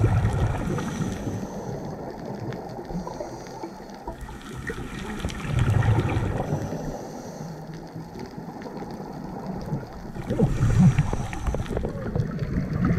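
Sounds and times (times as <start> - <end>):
low underwater wash: 0.0 - 12.9
regulator exhaling bubbles: 4.1 - 6.7, 10.1 - 12.9.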